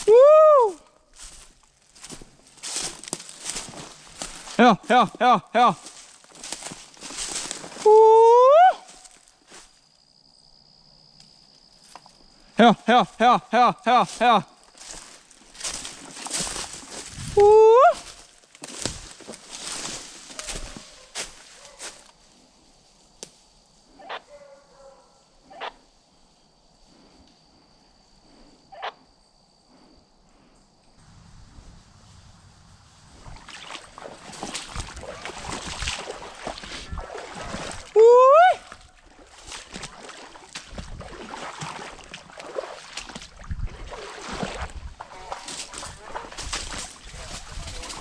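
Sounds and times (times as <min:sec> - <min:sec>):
footsteps wading through water: 0:01.1 - 0:08.0, 0:12.7 - 0:22.2, 0:33.0 - 0:48.0
faint dog barks: 0:20.4 - 0:22.1, 0:24.0 - 0:25.8.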